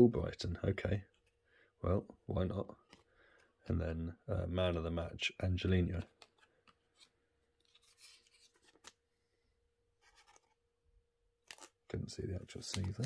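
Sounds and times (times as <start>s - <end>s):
trading card rustling in plastic sleeve: 6.0s - 9.1s, 10.0s - 10.6s, 11.4s - 13.0s
light clicks of card handling: 12.5s - 13.0s.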